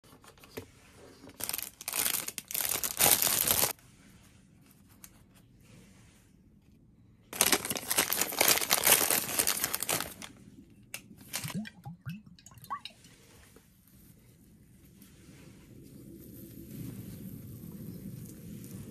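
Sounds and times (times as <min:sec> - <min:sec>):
food wrapping crinkling: 0:01.2 - 0:03.8, 0:07.3 - 0:10.4, 0:11.0 - 0:11.6.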